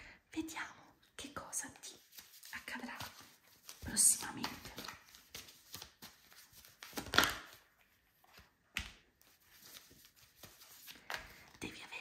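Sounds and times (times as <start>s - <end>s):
cards being shuffled: 2.0s - 11.6s
cards clacking and snapping: 3.0s - 7.7s.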